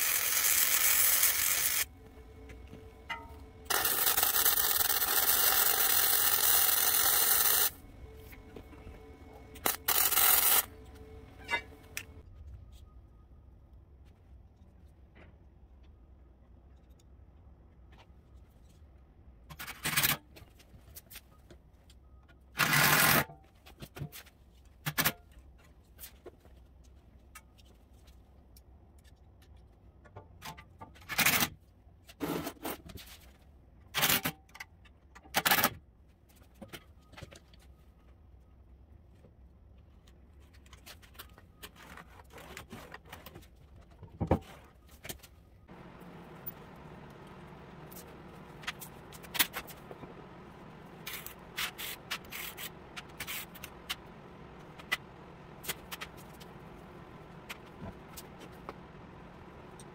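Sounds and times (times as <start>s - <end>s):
low steady hum: 1.4s - 19.4s, 43.6s - 59.9s
parts and tools knocking and scraping: 2.4s - 12.2s, 40.5s - 59.9s.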